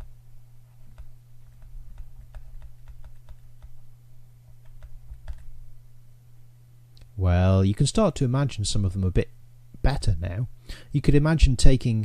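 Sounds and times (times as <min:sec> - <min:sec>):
steady low hum: 0:00.0 - 0:12.0
stylus tapping on tablet: 0:00.8 - 0:03.8, 0:04.5 - 0:05.5.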